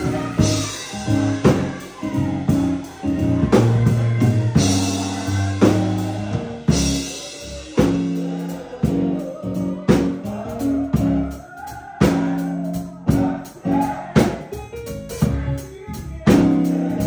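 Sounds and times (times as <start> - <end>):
drum kit with cymbal strokes: 0.0 - 17.0
keyboard chords: 0.0 - 17.0
voices singing: 0.0 - 17.0.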